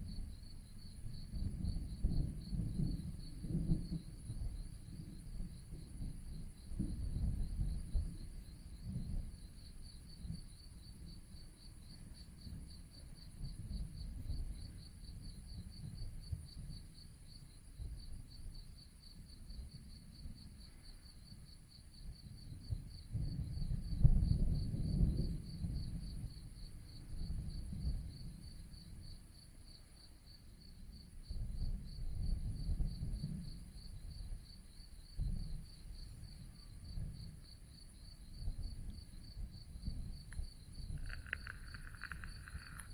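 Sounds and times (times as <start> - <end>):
crickets trilling: 0.0 - 42.9
distant thunder rumbling: 1.0 - 11.2, 31.5 - 42.9.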